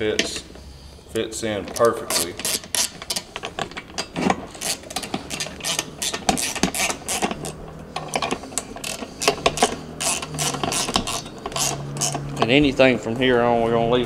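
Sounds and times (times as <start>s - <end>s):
ratchet clicking: 1.7s - 12.6s.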